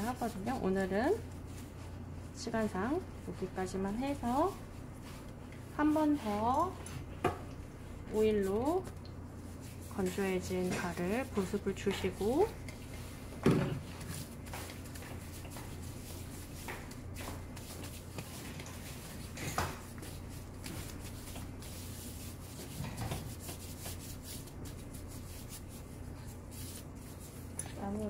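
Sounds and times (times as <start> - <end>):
hands rubbing skin: 8.4 - 27.6
glove rustles: 12.2 - 27.6.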